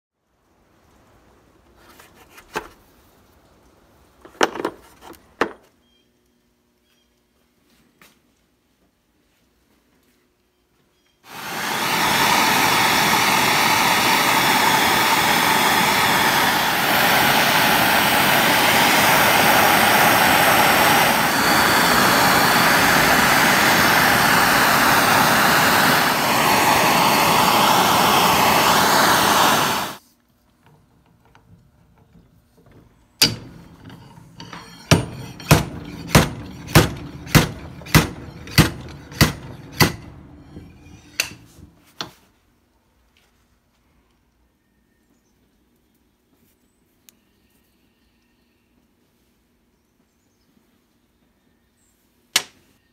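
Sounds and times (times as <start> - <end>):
gas torch hissing: 11.3 - 30.0, 33.2 - 41.5
sharp metal strikes: 33.2 - 41.5.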